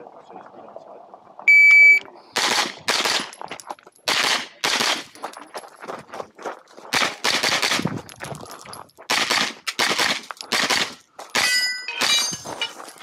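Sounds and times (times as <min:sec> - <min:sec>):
carbine firing quick shots: 0:02.4 - 0:03.3, 0:04.1 - 0:05.1, 0:06.9 - 0:07.9, 0:09.1 - 0:12.2
steel plates ringing: 0:11.4 - 0:13.0.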